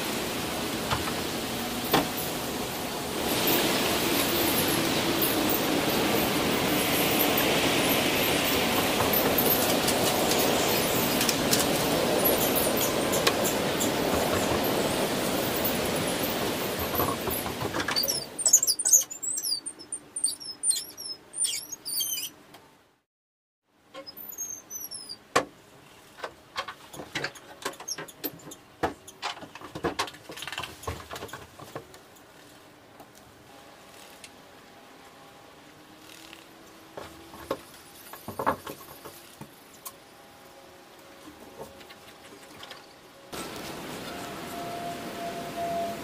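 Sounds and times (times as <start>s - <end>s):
loud steady rushing noise: 0.0s - 17.6s
high bird chirps: 18.0s - 22.3s.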